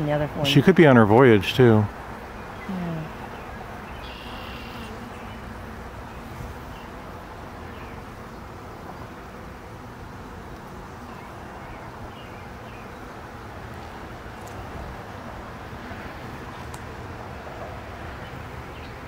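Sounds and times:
honeybees buzzing: 0.0 - 19.0.

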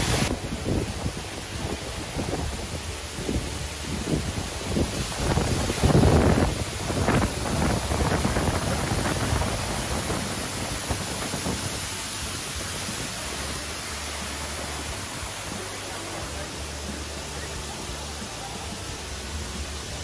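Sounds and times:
wind on microphone: 0.0 - 15.6
waterfall rushing splash: 0.0 - 20.0.

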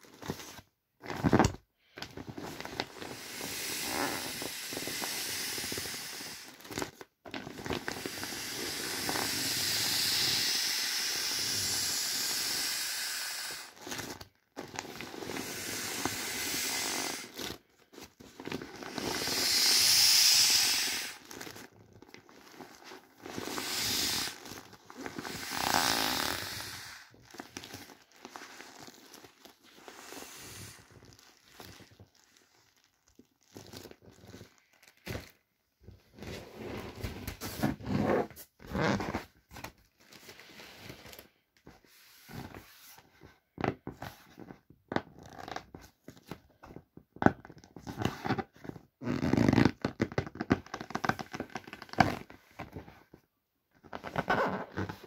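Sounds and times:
air hissing out of valves: 3.2 - 6.5, 8.0 - 13.8, 15.3 - 17.3, 18.9 - 21.2, 23.3 - 24.4, 25.2 - 27.1
vinyl crinkling: 27.1 - 29.9, 30.8 - 36.3.

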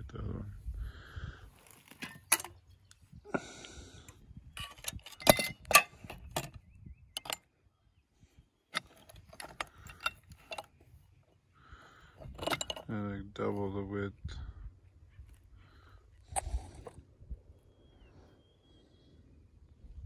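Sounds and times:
metal brackets clanking: 1.8 - 2.6, 4.6 - 6.6, 7.2 - 7.5, 8.8 - 10.8, 12.2 - 13.0.

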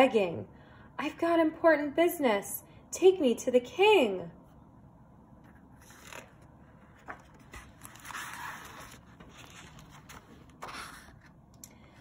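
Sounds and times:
book page rustling: 5.4 - 11.5.

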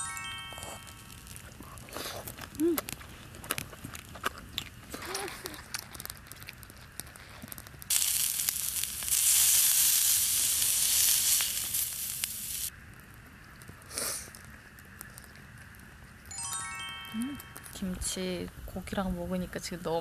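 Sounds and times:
meat sizzling in a pan: 7.9 - 12.7.

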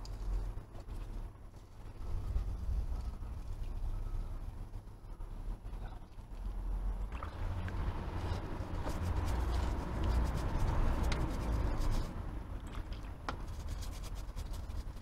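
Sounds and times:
low rumble: 0.0 - 13.9
brush scrubbing a chain: 8.0 - 12.2, 13.3 - 15.0.

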